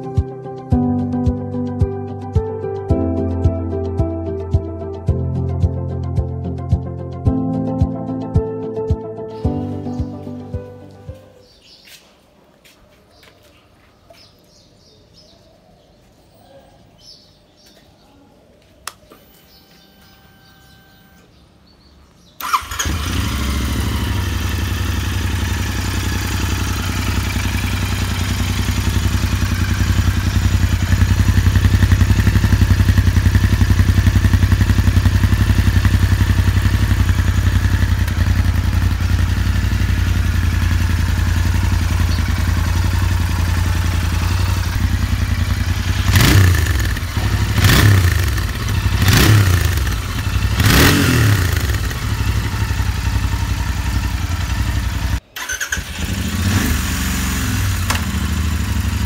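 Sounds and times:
motorcycle engine idling: 0:22.4 - 0:59.0
throttle revs: 0:22.4 - 0:59.0.

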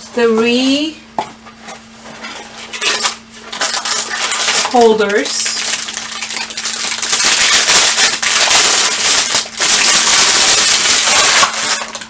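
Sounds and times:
plastic wrapping crinkling: 0:02.6 - 0:12.0.

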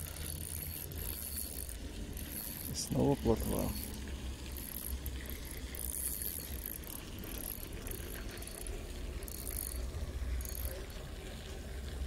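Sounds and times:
fishing reel gears ticking: 0:00.0 - 0:11.5.

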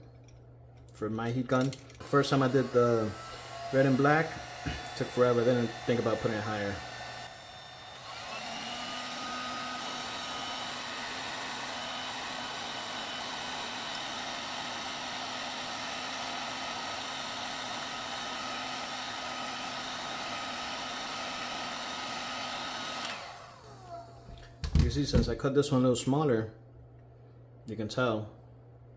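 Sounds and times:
heat gun blowing air: 0:02.0 - 0:24.4.

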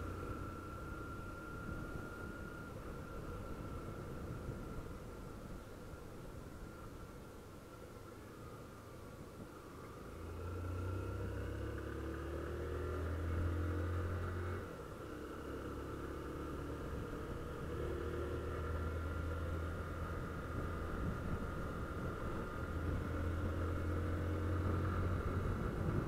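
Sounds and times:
motorcycle engine revving: 0:10.3 - 0:26.0.

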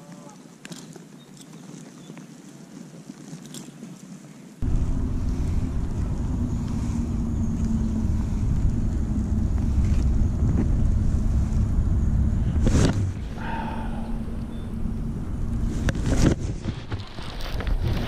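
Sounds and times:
faint steady hum: 0:04.6 - 0:16.2
wind buffeting microphone: 0:04.6 - 0:18.0.

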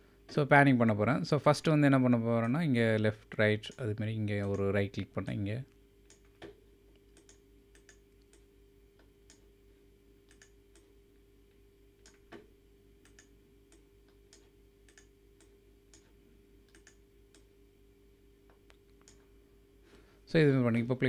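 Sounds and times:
low electrical hum: 0:00.0 - 0:21.0
faint mouse clicks: 0:06.1 - 0:08.5, 0:10.3 - 0:10.9, 0:13.0 - 0:16.1.

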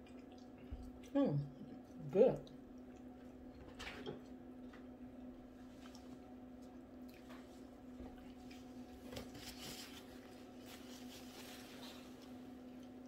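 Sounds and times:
chewing and wet mouth noises: 0:00.0 - 0:09.0, 0:12.0 - 0:13.0
steady low hum: 0:00.0 - 0:13.0.

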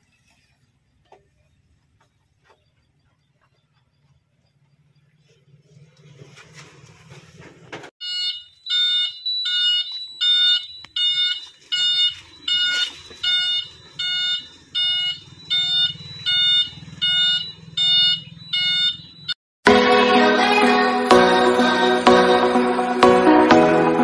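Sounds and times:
background music: 0:19.7 - 0:24.0.

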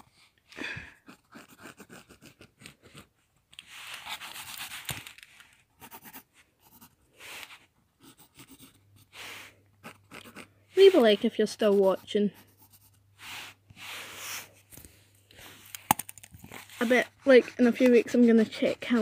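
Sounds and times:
pencil scratching on paper: 0:01.0 - 0:04.9, 0:05.8 - 0:14.7, 0:16.4 - 0:19.0
pencil rubbing across paper: 0:01.1 - 0:03.1, 0:05.8 - 0:14.7, 0:16.5 - 0:19.0.

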